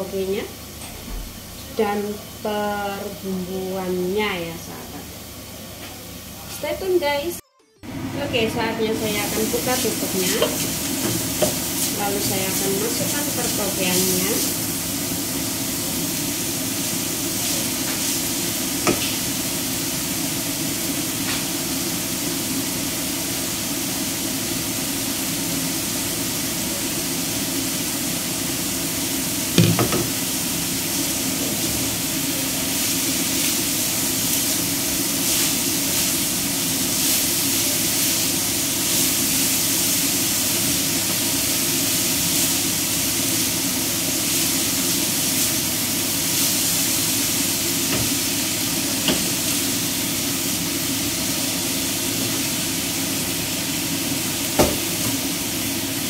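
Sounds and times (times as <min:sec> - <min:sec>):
food sizzling in a frying pan: 0:00.0 - 0:56.0
spatula stirring food: 0:09.5 - 0:14.8.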